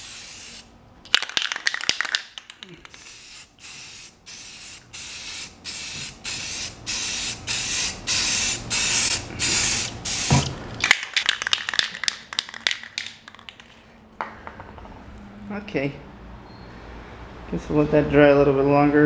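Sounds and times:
spray can hissing bursts: 0.0s - 0.7s, 2.8s - 13.2s.

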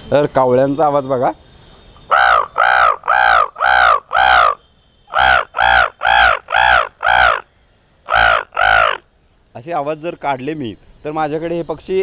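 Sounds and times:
man imitating crow caws: 2.1s - 7.4s, 8.1s - 9.0s.

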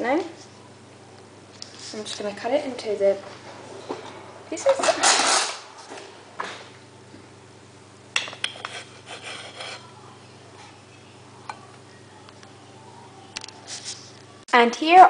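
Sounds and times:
knife scraping dough: 8.3s - 9.9s.

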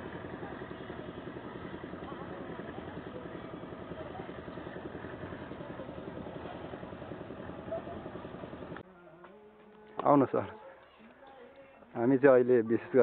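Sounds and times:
engine idling: 0.0s - 8.8s.

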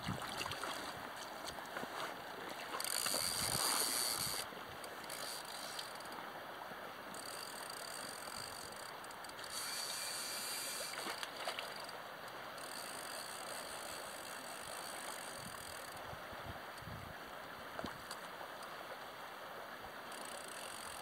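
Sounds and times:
river water rushing: 0.0s - 15.2s.

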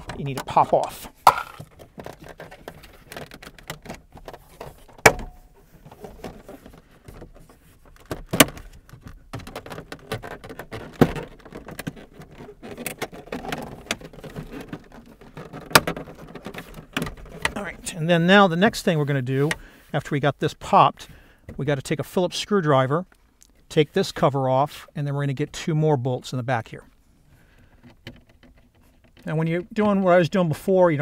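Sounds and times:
plastic panel rattling: 0.0s - 17.9s, 27.6s - 30.6s.

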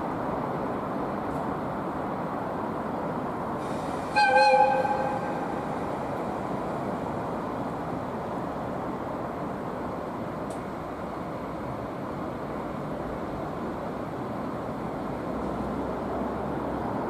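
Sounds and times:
diesel locomotive engines running: 0.0s - 17.0s
air horn blast: 3.7s - 5.9s.

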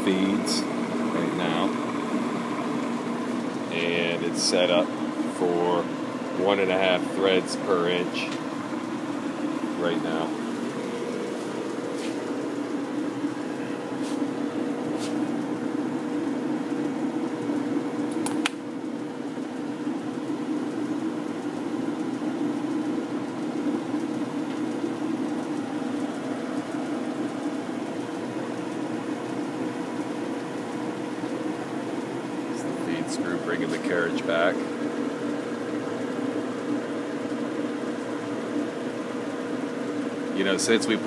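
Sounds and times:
lathe running hum: 0.0s - 41.0s
sharp click: 18.1s - 18.6s.

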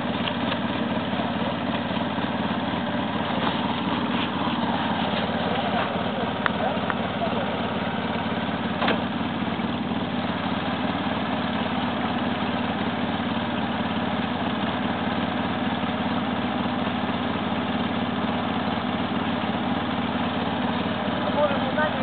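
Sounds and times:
quad engine idling: 0.0s - 22.0s.

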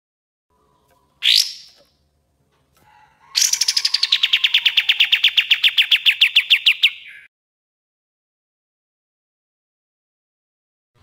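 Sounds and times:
bird rapid trill: 0.6s - 1.9s, 3.3s - 7.3s.

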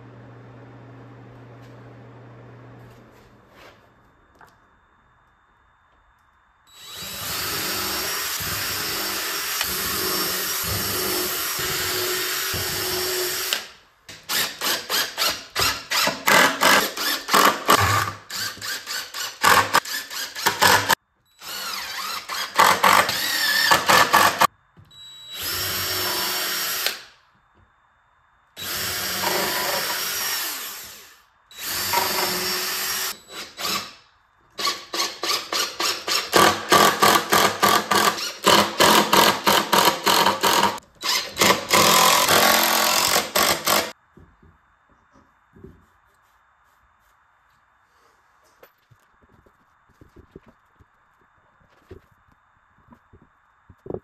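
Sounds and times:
cordless drill driving screws: 34.6s - 43.9s.

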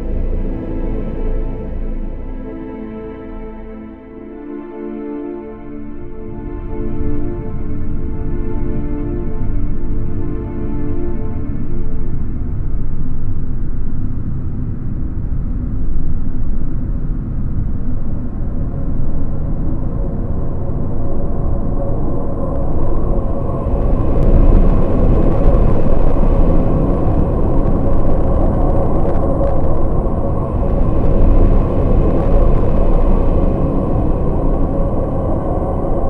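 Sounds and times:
loud low rumble: 0.0s - 4.4s, 20.1s - 36.0s.

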